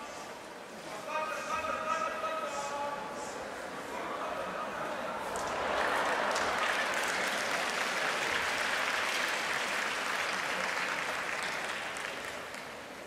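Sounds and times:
audience applauding: 5.3 - 12.9.

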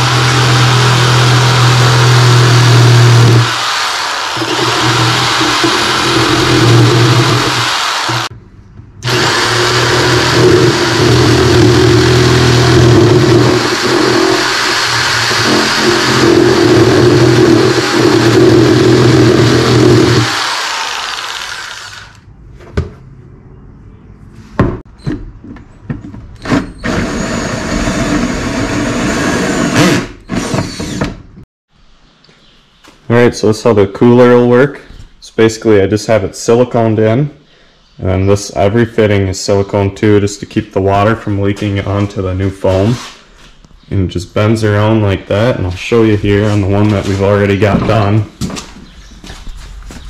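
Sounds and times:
cordless drill running: 0.0 - 8.3, 9.0 - 22.2, 26.8 - 31.1
jigsaw cutting plastic: 0.0 - 8.3, 9.0 - 22.2.

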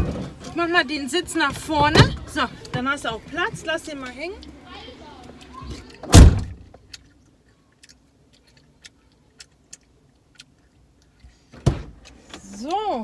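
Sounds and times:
car doors shutting: 6.0 - 6.6.

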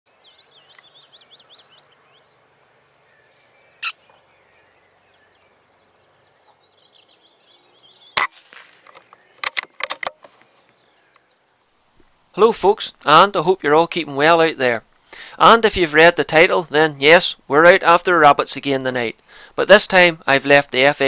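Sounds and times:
birdsong: 0.1 - 17.5
sharp cracks: 8.2 - 10.8.

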